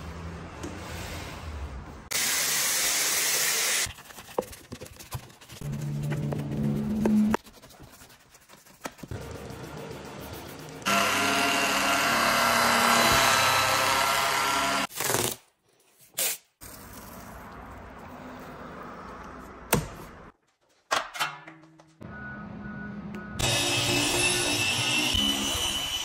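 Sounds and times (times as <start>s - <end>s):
electric polisher whirring: 10.8s - 14.9s, 23.4s - 26.0s.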